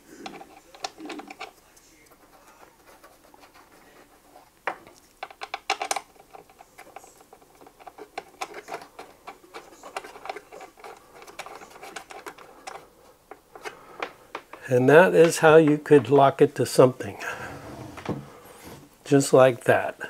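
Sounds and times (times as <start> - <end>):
metallic clicking and rattling of lock: 4.8 - 12.8.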